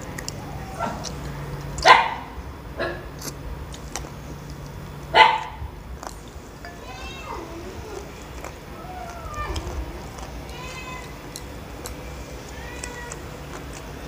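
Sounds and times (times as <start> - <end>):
domestic animal calling: 6.7 - 13.9.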